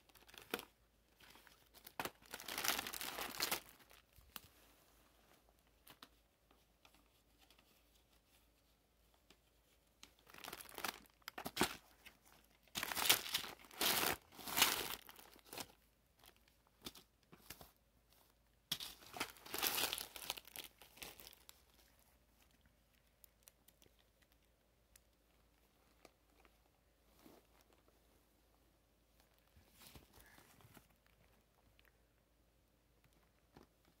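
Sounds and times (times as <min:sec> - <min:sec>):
candy wrappers crinkling: 0:00.0 - 0:04.4, 0:10.1 - 0:17.2, 0:18.7 - 0:25.2.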